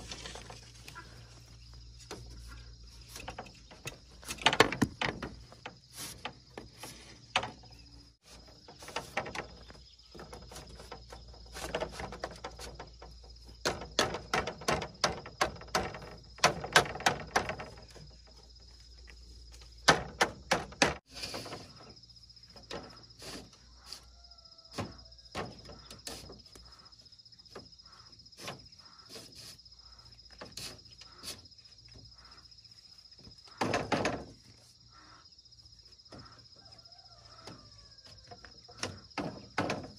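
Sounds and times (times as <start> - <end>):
bamboo slats clattering: 0.0 - 24.0, 24.7 - 32.2, 32.9 - 34.8, 37.4 - 39.9
high insect chirring: 0.0 - 39.9
hammer knocking bamboo: 11.6 - 17.9.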